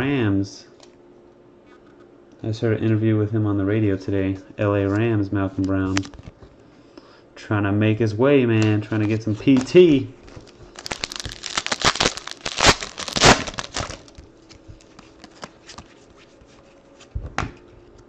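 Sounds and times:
wrapper tearing and crinkling: 10.7s - 15.9s.

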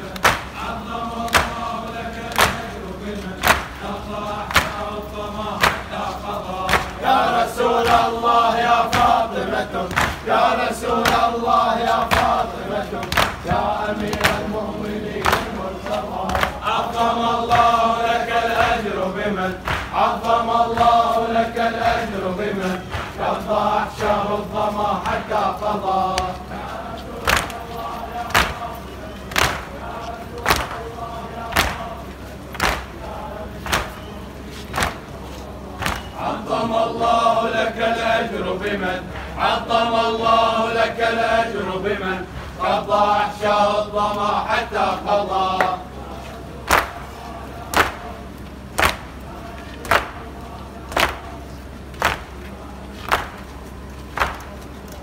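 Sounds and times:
crowd beating chests: 0.0s - 36.5s, 49.8s - 54.7s
crowd chanting: 0.0s - 55.0s
murmur of voices: 0.0s - 55.0s.

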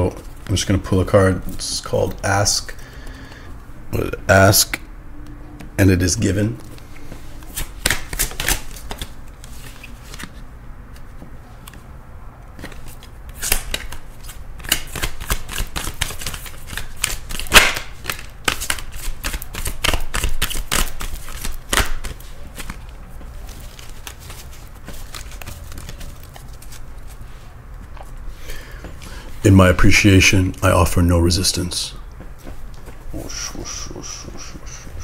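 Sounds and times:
cards being shuffled: 6.6s - 11.9s, 12.5s - 28.2s.

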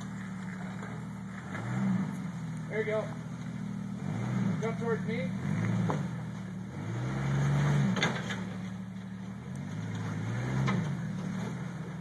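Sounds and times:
car engine revving: 0.0s - 12.0s.

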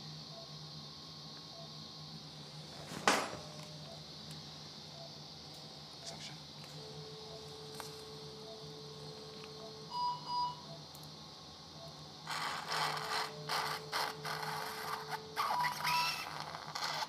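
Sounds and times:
faint steady tone: 6.8s - 11.1s
short beeps: 9.9s - 10.7s.

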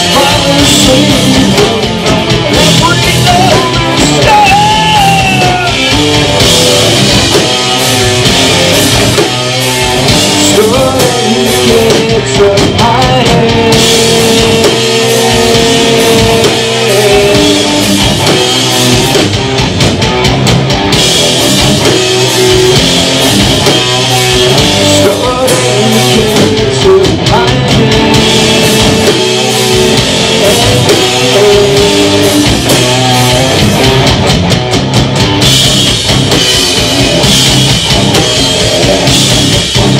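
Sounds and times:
person singing into microphone: 0.0s - 5.9s, 10.3s - 17.9s, 24.7s - 33.5s
drum kit: 0.0s - 39.9s
electric guitars: 0.0s - 39.9s.

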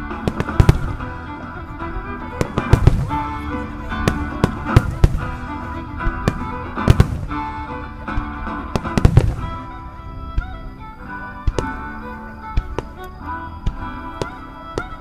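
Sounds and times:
background music: 0.0s - 15.0s
fireworks bursting: 0.0s - 15.0s.

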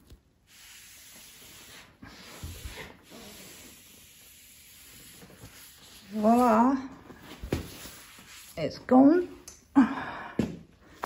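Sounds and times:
cloth rubbing a worktop: 0.0s - 8.8s.

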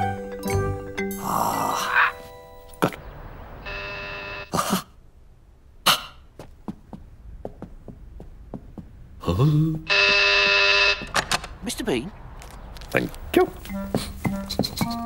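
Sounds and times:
person grunting: 1.2s - 2.2s, 9.2s - 9.8s
electric door buzzer: 3.6s - 4.5s, 9.9s - 11.2s
footsteps clattering down stairs: 6.4s - 9.3s, 13.7s - 15.0s.

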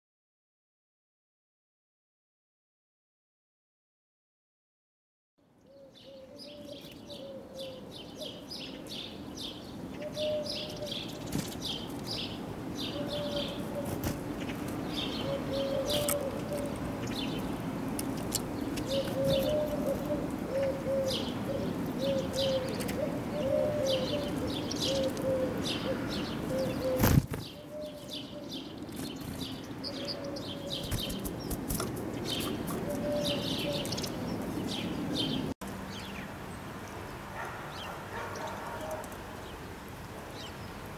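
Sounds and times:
songbirds chirping: 5.4s - 40.9s
lower bird call: 12.8s - 14.0s, 15.0s - 16.8s, 18.8s - 28.6s.

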